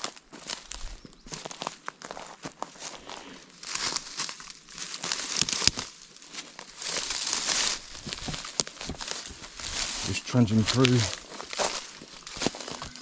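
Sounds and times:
brush crunching and crackling: 0.0s - 13.0s
twigs snapping: 3.6s - 10.0s, 10.7s - 13.0s.

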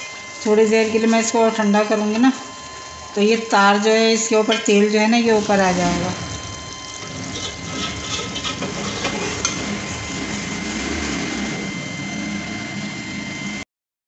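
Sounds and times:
metal ladle scraping pot: 4.2s - 13.0s.

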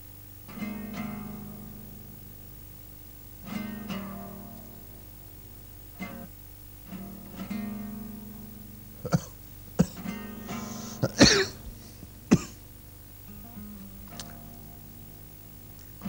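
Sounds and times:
acoustic guitar music: 0.0s - 16.0s
man coughing: 9.0s - 12.6s.

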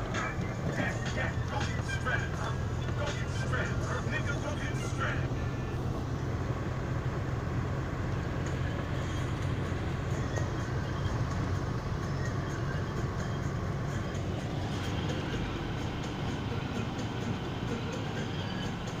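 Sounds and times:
car engine hum: 0.0s - 19.0s
tyres hissing on wet road: 0.0s - 19.0s.

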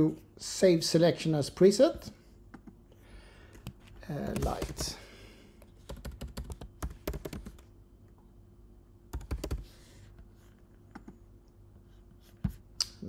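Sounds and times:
computer keyboard typing: 3.6s - 5.0s, 5.8s - 7.7s, 9.1s - 9.7s.

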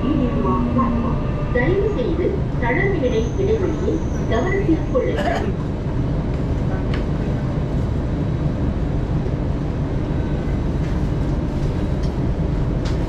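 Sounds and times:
metro train rumbling: 0.0s - 13.0s.

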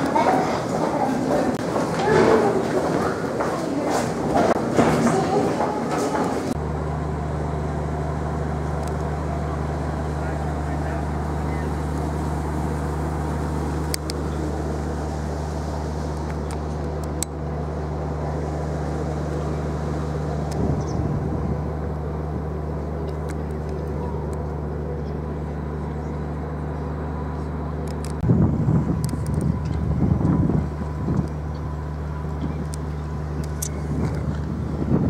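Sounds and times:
ferry engines droning: 0.0s - 35.0s
wind buffeting microphone: 19.6s - 22.8s, 28.2s - 35.0s.

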